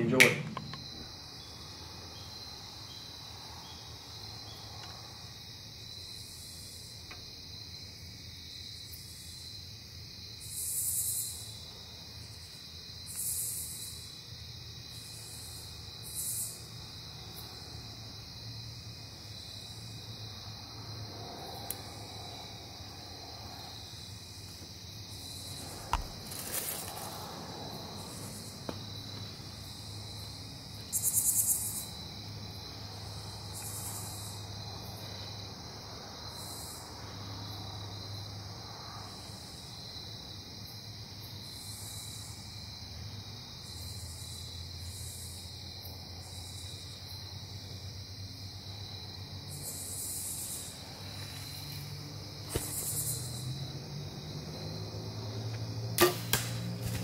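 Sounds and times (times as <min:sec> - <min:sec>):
crickets trilling: 0:00.0 - 0:57.0
high insect buzzes: 0:14.8 - 0:32.2, 0:48.6 - 0:57.0.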